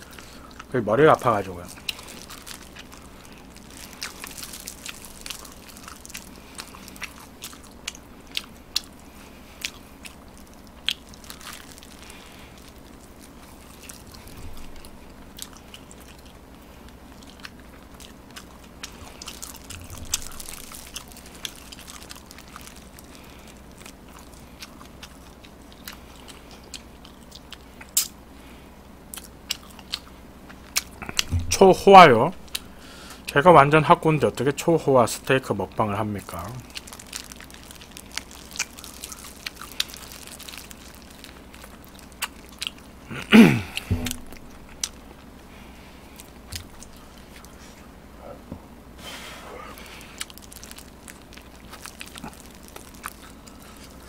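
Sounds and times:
person crunching and chewing: 0:00.0 - 0:28.2, 0:29.1 - 0:33.3, 0:36.2 - 0:47.9, 0:49.6 - 0:54.0
sharp crackles: 0:36.5 - 0:42.8, 0:50.1 - 0:54.0.

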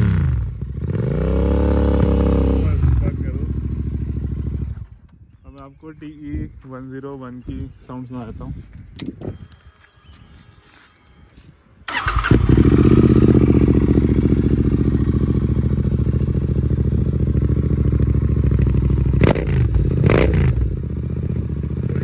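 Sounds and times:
motorcycle engine idling: 0:01.7 - 0:05.0, 0:11.9 - 0:22.0
motorcycle throttle blips: 0:11.9 - 0:22.0.

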